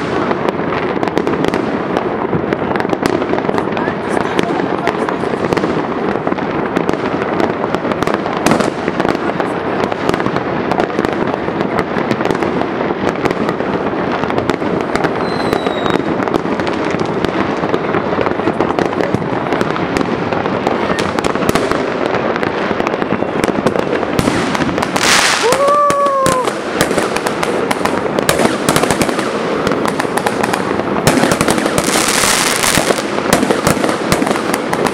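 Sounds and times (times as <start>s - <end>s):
fireworks bangs and crackles: 0.0s - 34.9s
firework whistle: 14.4s - 16.6s, 23.0s - 27.3s.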